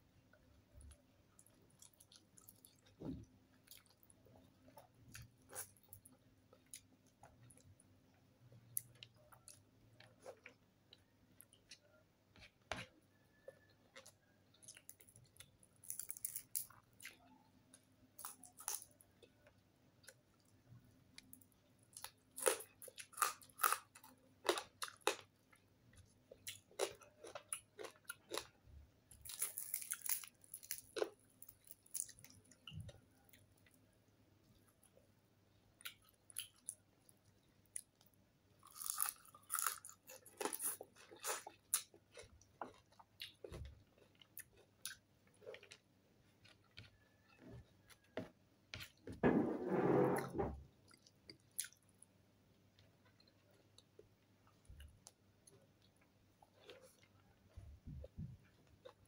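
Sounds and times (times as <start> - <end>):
person chewing crunchy food: 1.4 - 7.7, 8.7 - 17.5, 18.2 - 20.4, 21.6 - 33.7, 38.6 - 49.0, 52.7 - 59.0.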